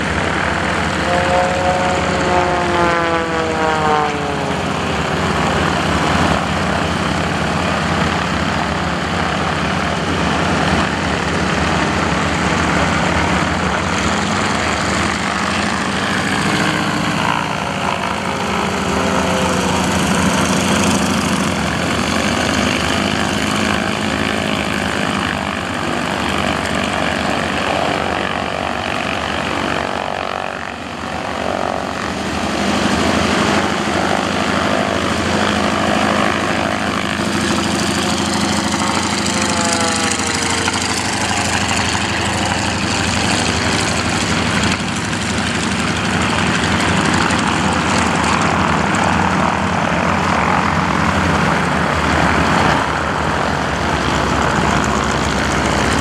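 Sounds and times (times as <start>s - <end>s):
propeller plane engine running hard: 0.0s - 56.0s.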